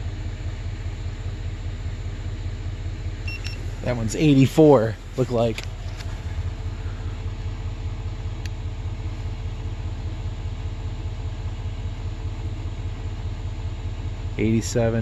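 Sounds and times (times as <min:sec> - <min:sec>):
snowmobile engine idling: 0:00.0 - 0:15.0.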